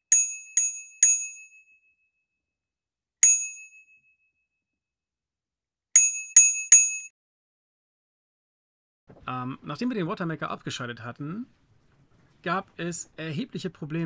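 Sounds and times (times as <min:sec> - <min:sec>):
bell-like chime dings: 0:03.2 - 0:04.6, 0:06.0 - 0:07.1.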